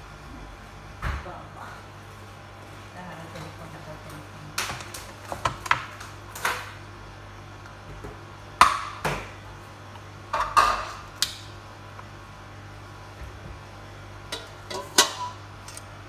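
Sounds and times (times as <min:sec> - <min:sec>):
steady low hum: 0:00.0 - 0:16.0
dishes and utensils clattering: 0:14.3 - 0:15.4.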